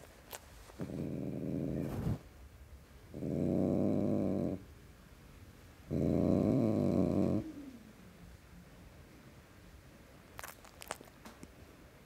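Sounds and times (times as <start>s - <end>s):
cat growling: 0.8s - 2.2s, 3.1s - 4.6s, 5.9s - 7.9s.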